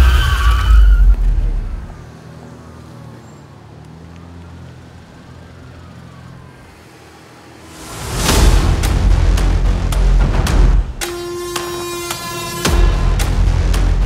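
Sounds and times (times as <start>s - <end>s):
faint police siren wailing: 4.2s - 7.9s.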